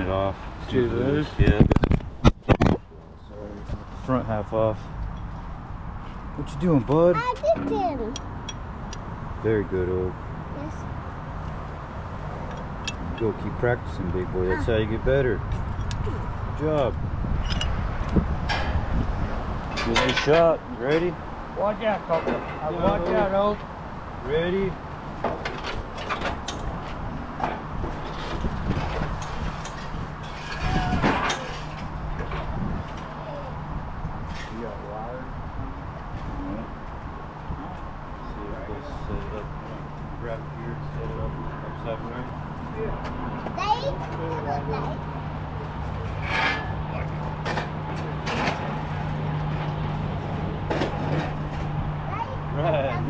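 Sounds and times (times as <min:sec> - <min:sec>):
metal clanking and scraping: 0:15.5 - 0:21.2, 0:22.1 - 0:23.5, 0:25.2 - 0:33.1, 0:34.2 - 0:34.8, 0:45.7 - 0:51.8.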